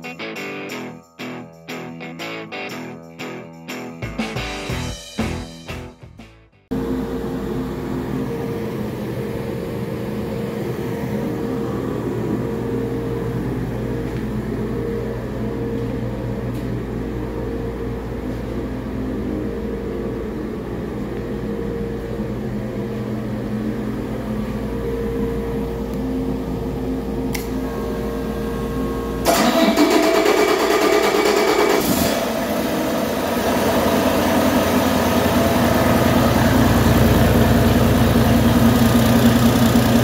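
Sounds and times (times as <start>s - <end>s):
diesel engine idling: 28.6s - 40.0s.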